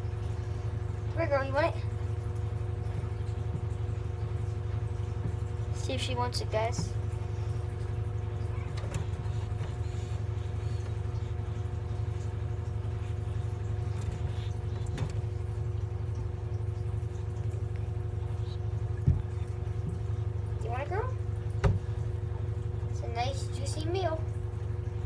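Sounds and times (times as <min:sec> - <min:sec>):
low machine hum with tones: 0:00.0 - 0:25.0.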